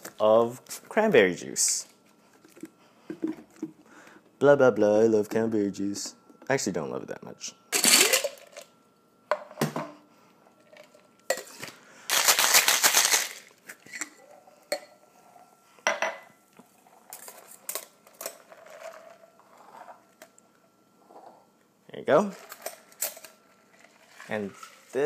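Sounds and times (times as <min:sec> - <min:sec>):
ice rattling in shaker: 0:12.1 - 0:13.5.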